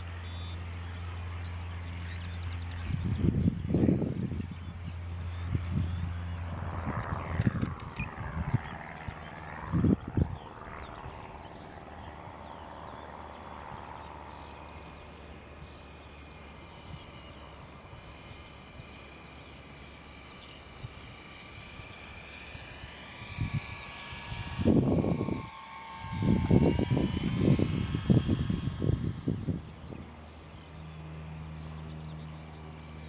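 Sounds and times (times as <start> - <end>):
electric model plane motor whining: 13.7 - 33.0.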